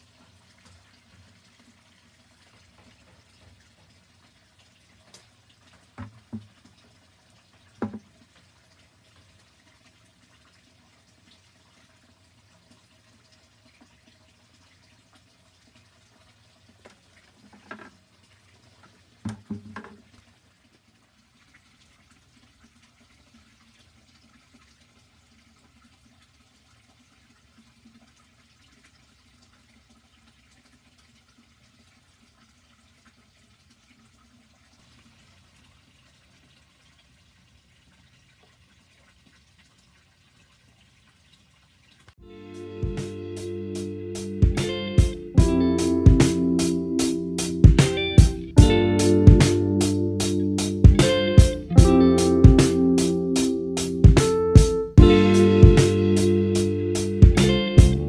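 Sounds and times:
faint water sound: 0.0 - 58.0
buckets clunking: 19.2 - 20.1.

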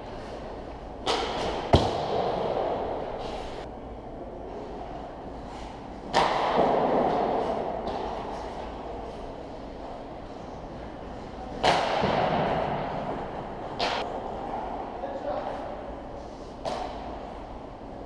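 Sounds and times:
puck impact crack: 1.0 - 2.8, 6.1 - 8.4, 11.6 - 13.0.

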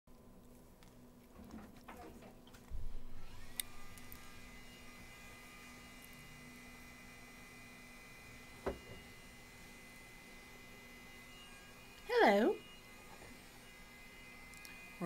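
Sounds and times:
low electrical hum: 0.1 - 15.0
click: 14.5 - 14.8.

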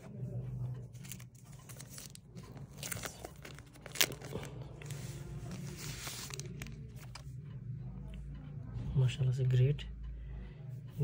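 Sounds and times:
plastic sleeve crinkling: 1.0 - 7.2.

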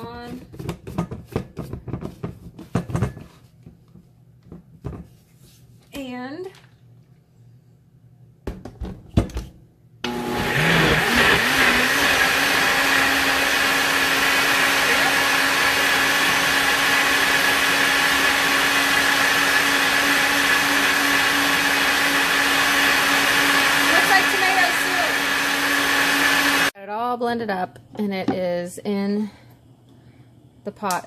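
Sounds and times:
blender motor whining: 10.0 - 26.7.

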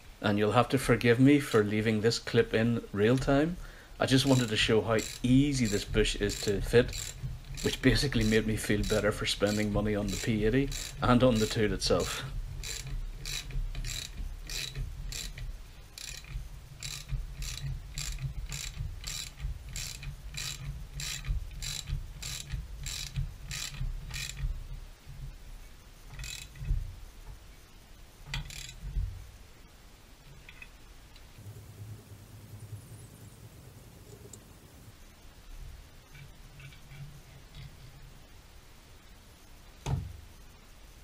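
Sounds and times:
ratchet wrench clicking: 4.2 - 24.6, 26.1 - 26.7, 28.3 - 29.0.

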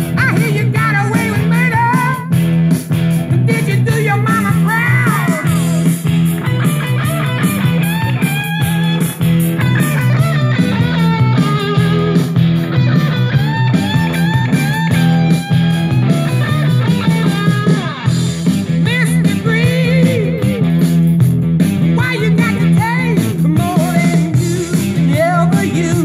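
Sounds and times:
person singing: 0.0 - 2.4, 3.4 - 7.5, 18.8 - 20.8, 21.9 - 26.0
rock music with guitar: 0.0 - 26.0.

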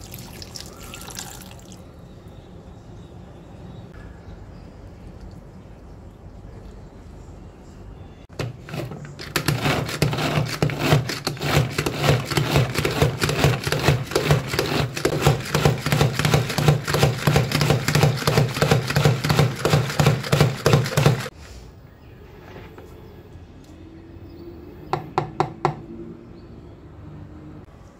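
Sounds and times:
food chopper blades chopping: 8.4 - 21.3.

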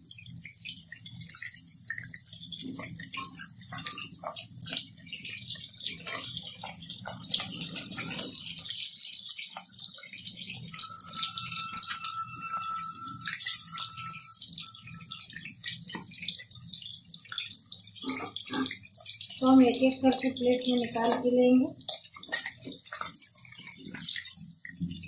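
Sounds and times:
chicken sizzling in hot oil: 0.0 - 25.0
wire strainer scraping against pan: 10.5 - 15.3.

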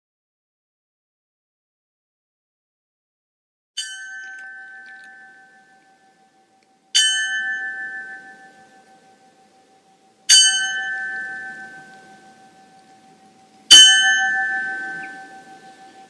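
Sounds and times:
church bell tolling: 3.8 - 16.0.

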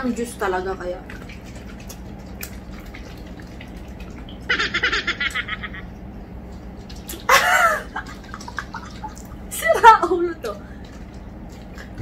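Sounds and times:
chewing and mouth clicks: 1.1 - 4.4.

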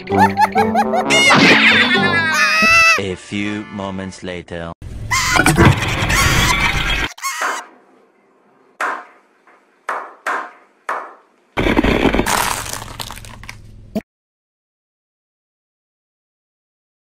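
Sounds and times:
tyre crushing brittle object: 12.0 - 13.6.

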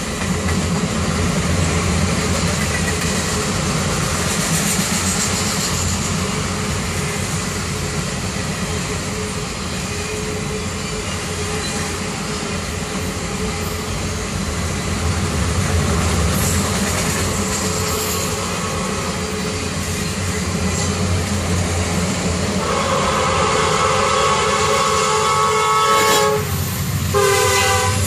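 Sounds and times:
train wheels rumbling on rails: 0.0 - 28.0
train horn: 22.6 - 28.0.

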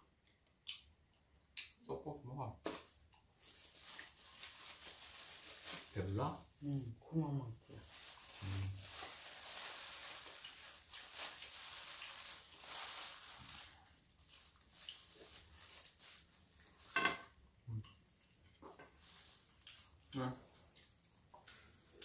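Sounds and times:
plastic bag rustling: 2.6 - 6.6, 7.6 - 17.4, 18.7 - 21.1.

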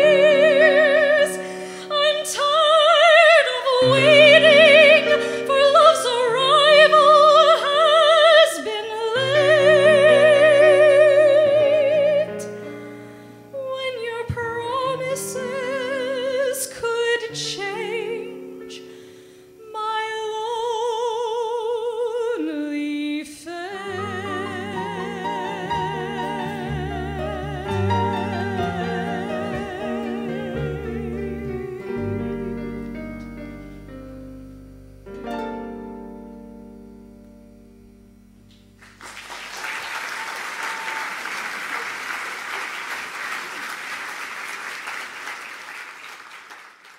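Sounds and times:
woman singing operatically: 0.0 - 12.7, 13.5 - 18.9, 19.6 - 31.9.

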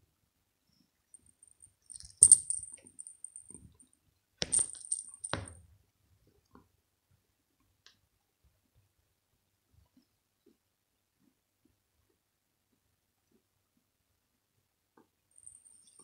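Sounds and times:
small bell jingling: 1.2 - 3.7, 4.4 - 5.6, 15.4 - 16.0.

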